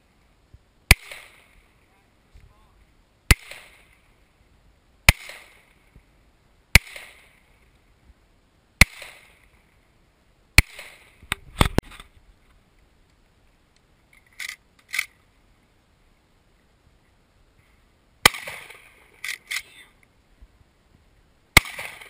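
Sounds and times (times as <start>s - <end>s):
pistol shots with echo: 0.9s - 1.6s, 3.3s - 4.0s, 5.1s - 5.7s, 6.8s - 7.4s, 8.8s - 9.4s, 10.6s - 11.1s, 18.2s - 18.8s, 21.6s - 22.0s.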